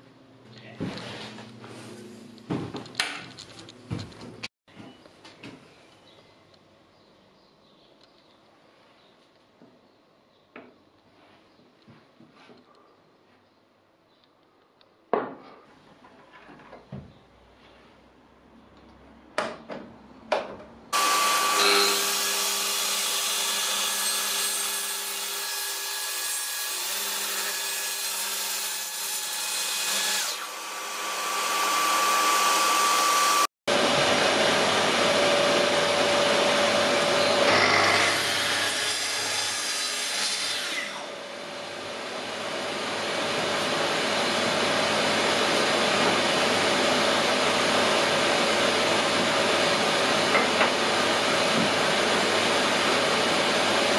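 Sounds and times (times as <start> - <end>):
track saw whining: 21.0 - 24.0, 30.0 - 38.8.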